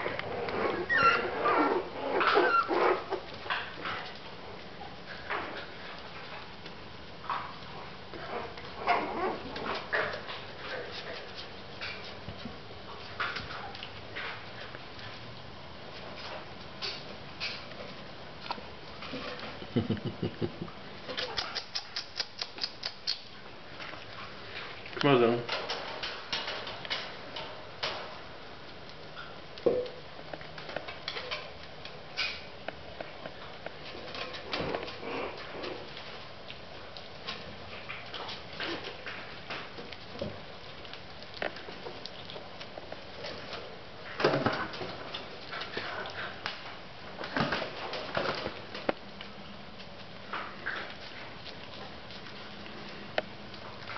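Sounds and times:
puppies whining: 0:00.0 - 0:03.3, 0:08.2 - 0:09.8
paws clicking on floor: 0:00.0 - 0:19.7, 0:20.3 - 0:53.9.

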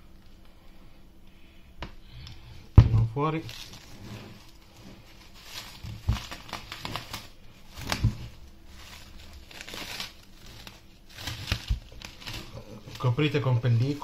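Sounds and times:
plastic cling film crinkling: 0:02.9 - 0:14.0.

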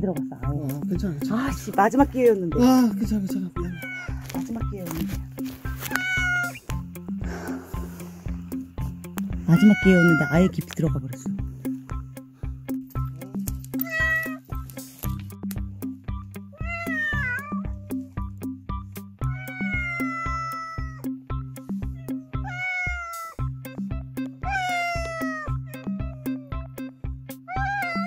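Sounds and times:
background music with steady beat: 0:00.0 - 0:28.0
cats meowing: 0:03.6 - 0:04.4, 0:05.8 - 0:06.9, 0:09.4 - 0:10.5, 0:13.7 - 0:14.6, 0:16.5 - 0:18.0, 0:19.2 - 0:23.5, 0:24.4 - 0:28.0.

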